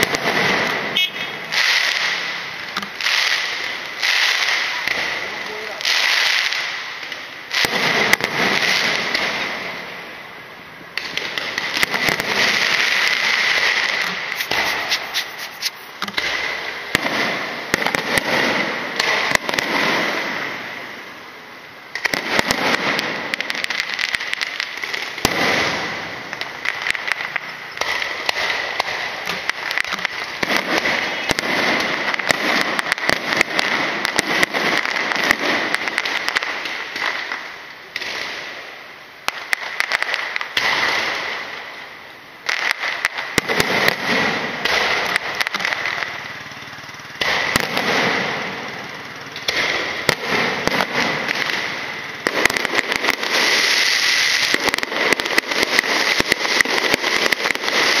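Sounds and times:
fireworks crackling: 0.0s - 58.0s
high hiss: 12.6s - 16.7s.

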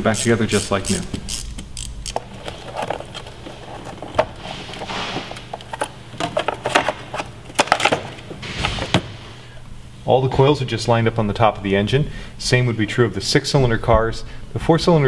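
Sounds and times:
rubbing sound: 2.4s - 5.8s.

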